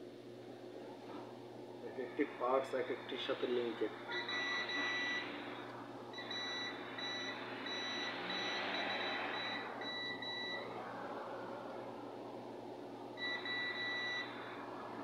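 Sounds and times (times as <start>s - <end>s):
multimeter short high beeps: 4.2s - 5.3s, 6.2s - 10.6s, 13.2s - 14.4s.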